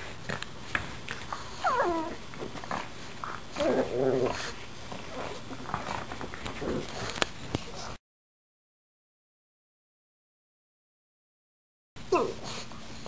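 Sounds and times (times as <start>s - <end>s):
dog growling: 1.3s - 7.2s
dog whining: 1.4s - 2.2s.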